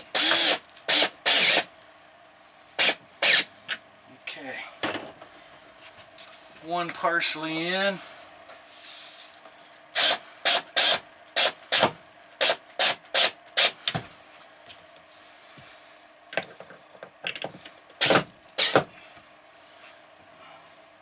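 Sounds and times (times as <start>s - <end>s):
cordless drill driving screws: 0.1s - 1.7s, 2.8s - 3.5s, 10.0s - 13.8s, 18.0s - 18.8s.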